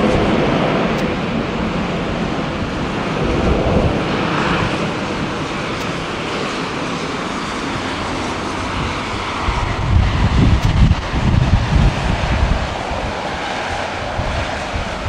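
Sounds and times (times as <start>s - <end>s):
distant jet engines roaring: 0.0s - 15.0s.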